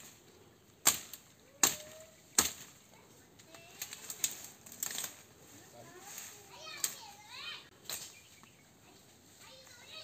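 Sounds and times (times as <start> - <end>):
machete chopping plant stalks: 0.0 - 0.2, 0.8 - 5.3.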